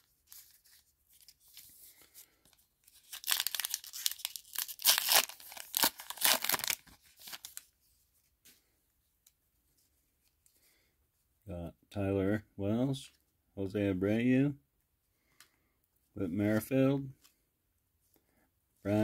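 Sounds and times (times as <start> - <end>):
foil wrapper tearing and crackling: 2.9 - 7.6.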